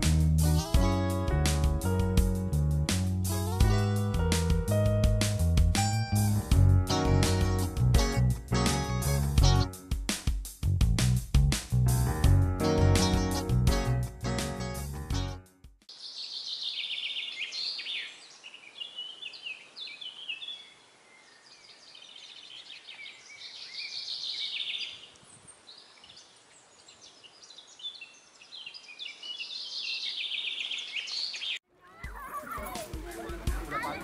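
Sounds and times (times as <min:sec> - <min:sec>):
faint steady hiss: 0:15.9 - 0:29.5
songbirds chirping and trilling: 0:15.9 - 0:31.6.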